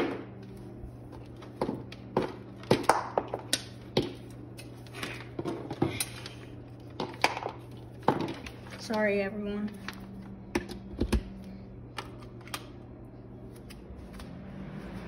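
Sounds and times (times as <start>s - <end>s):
low hum: 3.4s - 15.0s.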